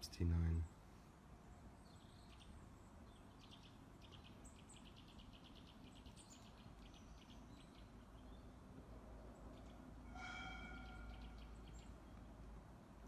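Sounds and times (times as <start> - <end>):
faint outdoor hush: 0.0 - 4.5, 7.4 - 13.0
small bird chirping: 1.5 - 8.6, 9.3 - 12.3.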